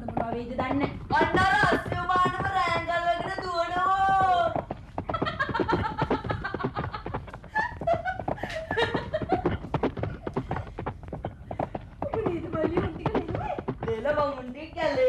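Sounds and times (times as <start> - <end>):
young woman laughing: 5.2 - 9.7.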